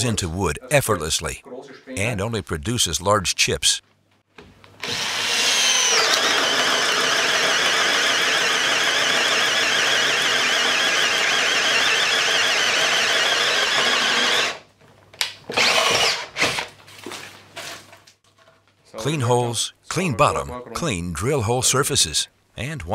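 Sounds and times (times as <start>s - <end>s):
cordless drill boring into wood: 4.8s - 14.6s, 15.5s - 16.6s.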